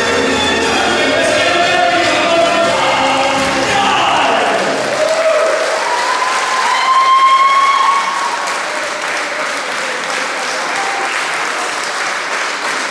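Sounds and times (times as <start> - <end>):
audience applauding: 4.1 - 12.9.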